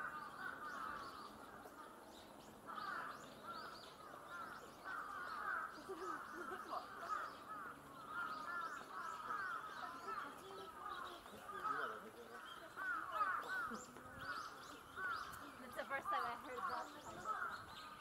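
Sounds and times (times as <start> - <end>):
crows cawing: 0.0 - 2.0, 2.6 - 18.0
birds calling: 0.0 - 18.0.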